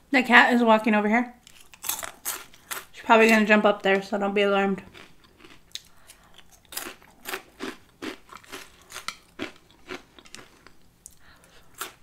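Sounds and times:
crunchy chewing: 1.4 - 2.9, 4.9 - 12.0.

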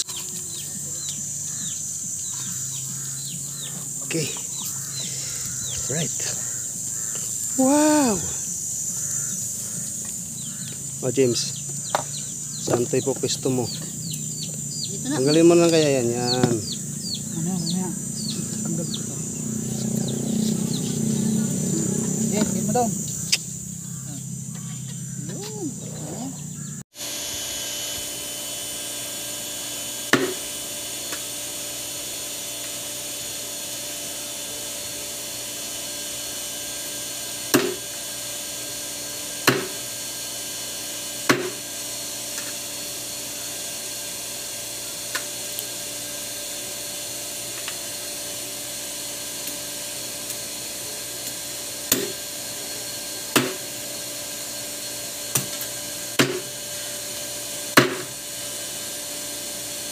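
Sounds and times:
machete chopping on wooden block: 30.1 - 30.4, 37.5 - 37.9, 39.4 - 39.8, 41.3 - 41.6, 51.9 - 52.2, 53.3 - 53.6, 56.2 - 56.5, 57.8 - 58.1.

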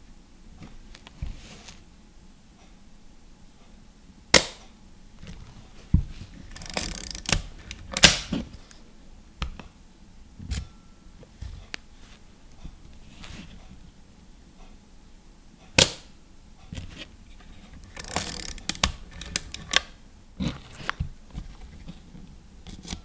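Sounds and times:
camera winding rattle: 6.5 - 7.5, 17.8 - 19.8
small mechanical clicks: 6.5 - 8.2, 17.8 - 19.9.

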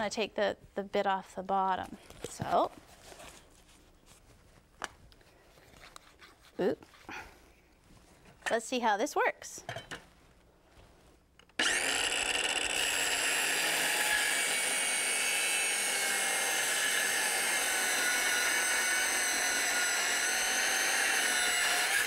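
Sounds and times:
circular saw cutting wood: 11.6 - 22.0.

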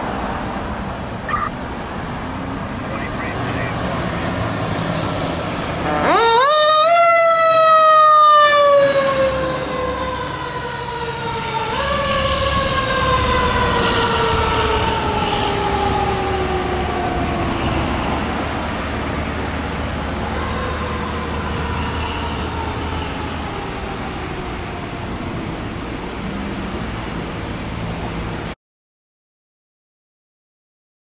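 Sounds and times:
truck engine rumble: 0.0 - 17.4
fire truck siren wailing: 1.2 - 1.6, 5.6 - 25.8.

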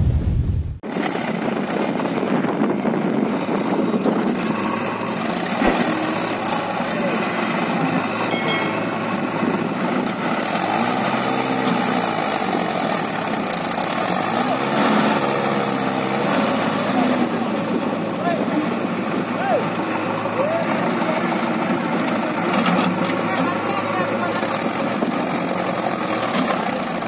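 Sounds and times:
low boom: 0.0 - 0.8
diesel engines running: 0.8 - 27.0.

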